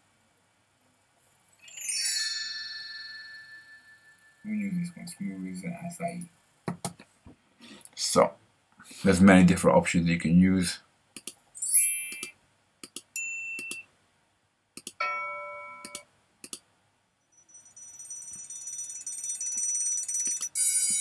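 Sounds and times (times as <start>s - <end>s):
electric alarm bell ringing: 1.6s - 4.6s, 15.0s - 16.0s, 17.3s - 21.0s
bell ringing: 1.6s - 4.7s, 15.0s - 16.0s, 17.4s - 21.0s
bright chime: 1.6s - 4.8s, 15.0s - 16.0s, 17.4s - 21.0s
mouse clicks: 14.8s - 15.0s.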